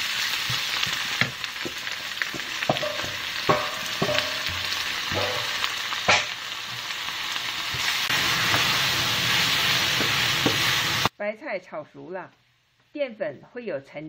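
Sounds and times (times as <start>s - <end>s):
cabbage sizzling in hot oil: 0.0s - 11.1s
spatula knocking against pan: 1.7s - 6.3s.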